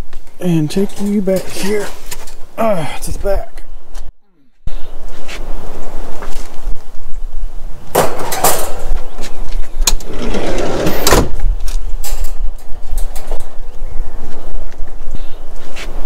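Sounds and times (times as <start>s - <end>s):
wind buffeting microphone: 0.0s - 16.0s
wire cage scraping on concrete: 9.9s - 11.3s.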